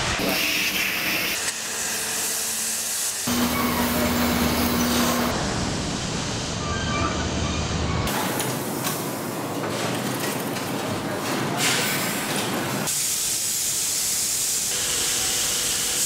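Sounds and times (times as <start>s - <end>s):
steady machine hum: 3.3s - 6.0s
factory machinery din: 3.3s - 13.0s.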